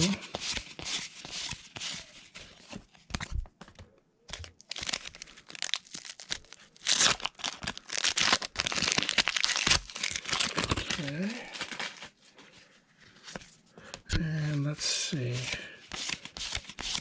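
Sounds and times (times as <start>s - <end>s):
cards riffled by hand: 0.0s - 12.1s, 15.2s - 17.0s
wax paper wrapper tearing: 4.6s - 12.1s.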